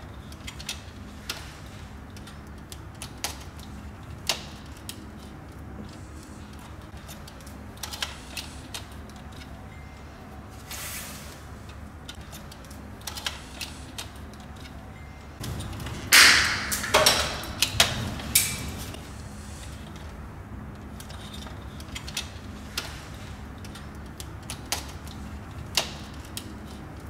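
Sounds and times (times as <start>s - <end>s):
cables rustling and clattering: 11.6s - 27.0s
small clicks and scrapes: 20.8s - 27.0s.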